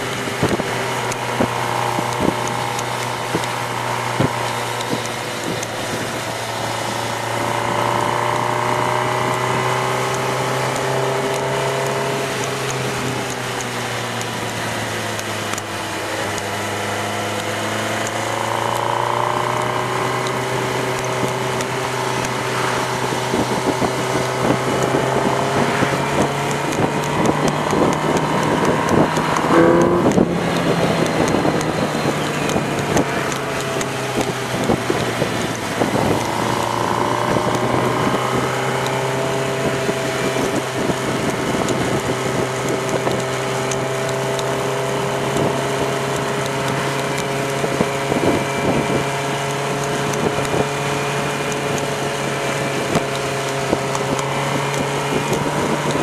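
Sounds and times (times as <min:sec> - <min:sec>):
wind over microphone: 0:00.0 - 0:16.8, 0:19.1 - 0:56.0
motorcycle engine cruising: 0:00.0 - 0:56.0.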